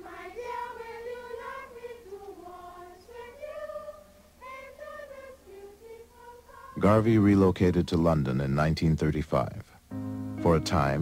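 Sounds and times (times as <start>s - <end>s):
children singing a taunt: 0.0s - 6.8s.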